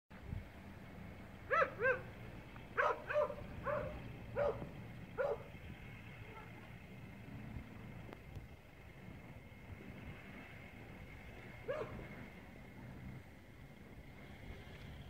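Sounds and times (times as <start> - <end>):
distant dog barking: 1.4 - 5.6, 11.6 - 12.1.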